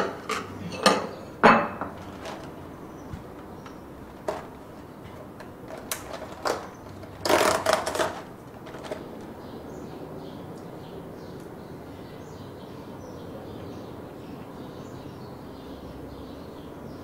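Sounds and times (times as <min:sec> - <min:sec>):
dishes clattering and rustling: 0:00.0 - 0:09.4.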